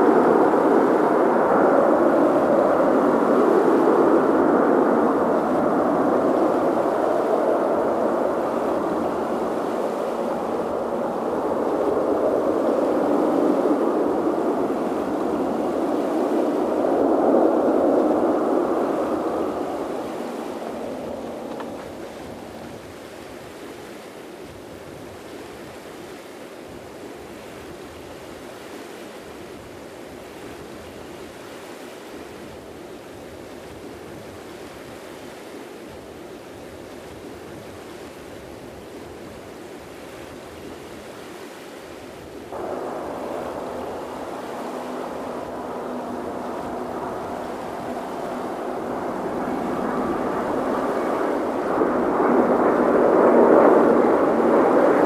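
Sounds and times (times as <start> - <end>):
jet engine roar: 0.0 - 24.3, 37.8 - 55.0
faint steady hum: 0.0 - 55.0
surf and wind: 0.0 - 55.0.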